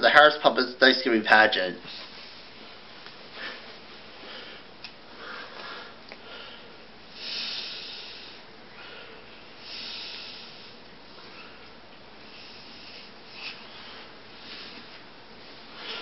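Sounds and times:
person breathing and sniffing: 3.3 - 11.6, 12.2 - 15.0.

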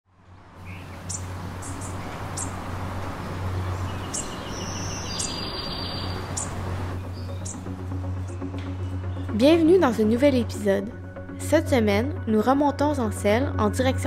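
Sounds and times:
birds chirping: 0.6 - 10.5.

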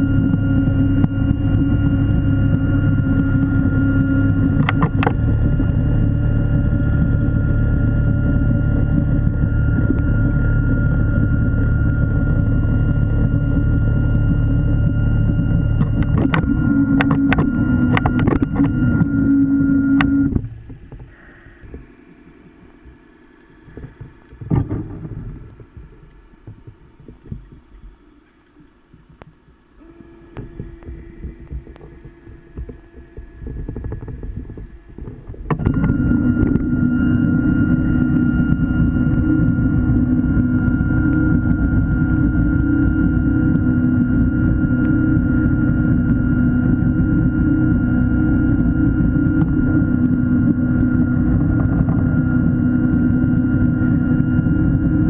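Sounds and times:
electric motor humming underwater: 0.0 - 55.0
low underwater rumbles and knocks: 23.6 - 28.0, 30.4 - 36.8, 48.5 - 53.1.

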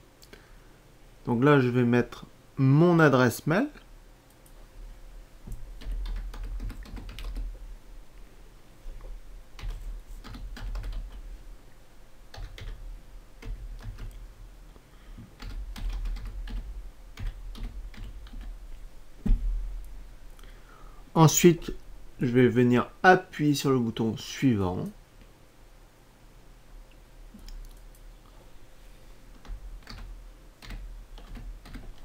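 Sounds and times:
computer keyboard typing: 5.5 - 7.6, 9.6 - 11.2, 12.3 - 12.8, 13.4 - 14.2, 15.3 - 18.6, 29.4 - 32.0
dull thump: 19.2 - 19.6.

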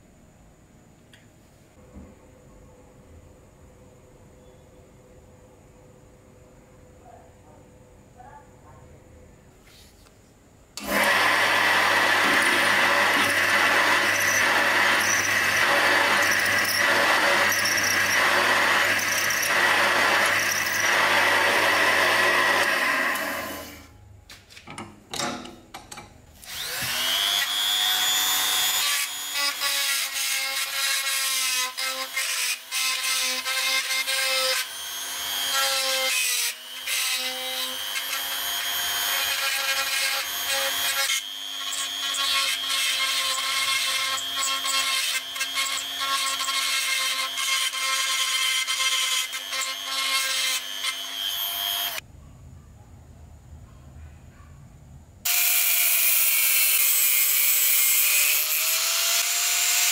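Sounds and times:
drill-driver driving screws: 10.8 - 23.7
power drill boring into steel: 10.8 - 23.8, 26.4 - 52.0.

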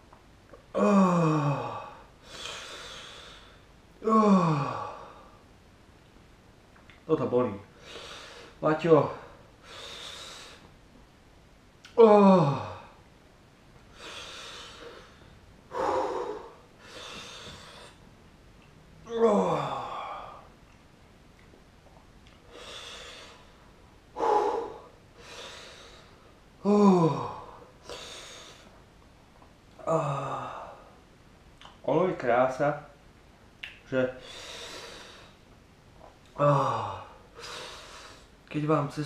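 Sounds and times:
man groaning in pain: 0.7 - 2.0, 4.0 - 5.0, 12.0 - 12.9, 19.0 - 20.4, 26.6 - 27.6, 29.8 - 30.8, 36.4 - 37.2
man breathing hard: 0.8 - 5.4, 7.7 - 8.6, 9.2 - 10.7, 13.9 - 18.0, 22.4 - 28.8, 34.2 - 35.4, 36.4 - 38.4.

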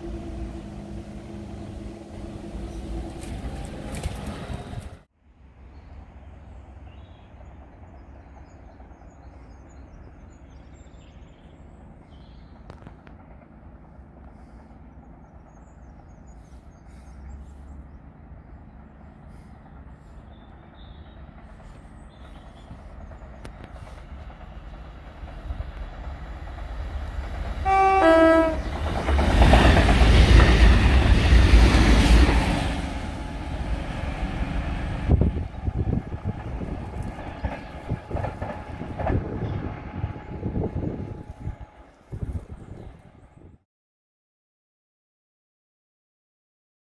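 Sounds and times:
rail machine rumbling: 0.0 - 43.6
wheels rushing on rails: 0.0 - 43.6
two-tone horn: 27.6 - 28.7.

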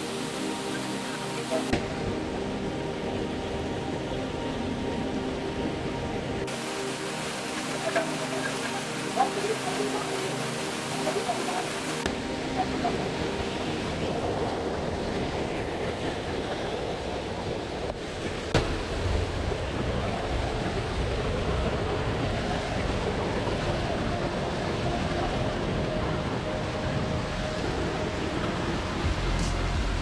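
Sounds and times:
river water rushing: 0.0 - 30.0
wind buffeting microphone: 9.3 - 30.0.

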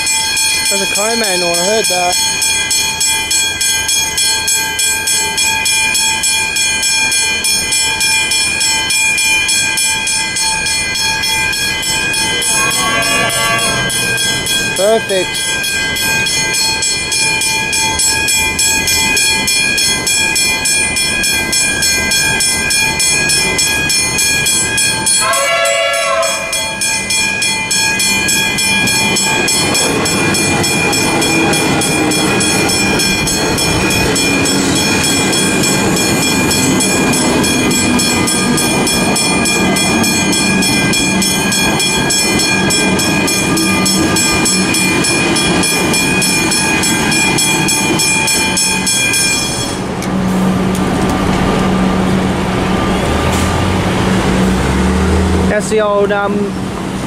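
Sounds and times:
electric train passing: 0.0 - 57.0
railway crossing bell ringing: 0.0 - 57.0
train horn: 12.5 - 14.0, 25.1 - 26.8.

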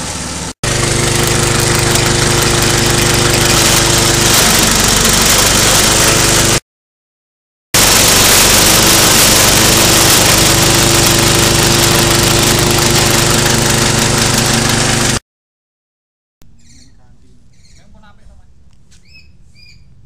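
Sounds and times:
shredder engine running: 0.0 - 6.6, 7.8 - 15.2
hiss of cut fodder: 7.8 - 15.2.

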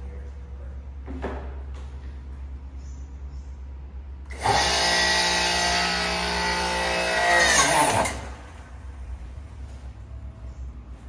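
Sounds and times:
hydraulic pump motor whining: 4.3 - 8.7.

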